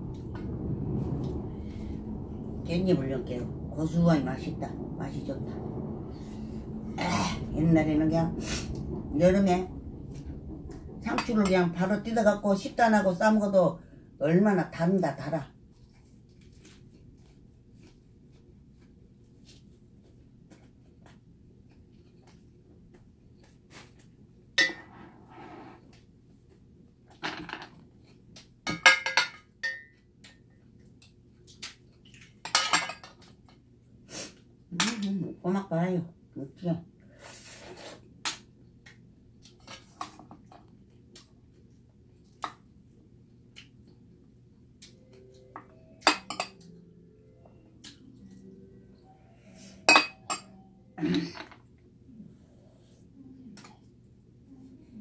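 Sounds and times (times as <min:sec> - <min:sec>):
metal spoon clinking ceramic bowl: 0:45.6 - 0:46.7.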